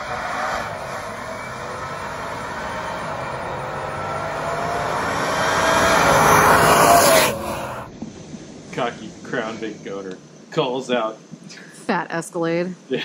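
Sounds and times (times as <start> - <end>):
car engine accelerating: 0.0 - 7.9.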